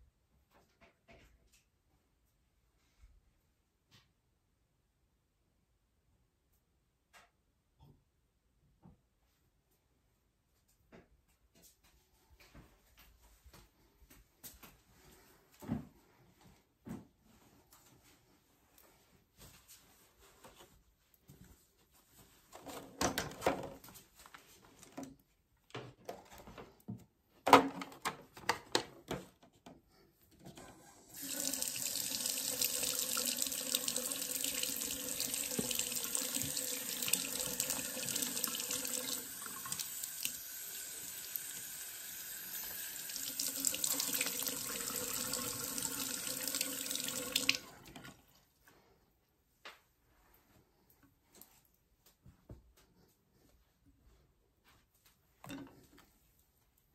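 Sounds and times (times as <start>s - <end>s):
faucet running into sink: 31.1s - 48.2s.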